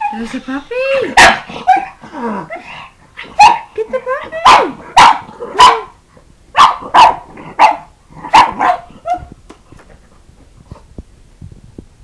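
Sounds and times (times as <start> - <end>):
dog barking: 1.2 - 1.9, 3.3 - 3.7, 4.4 - 5.9, 6.6 - 9.3.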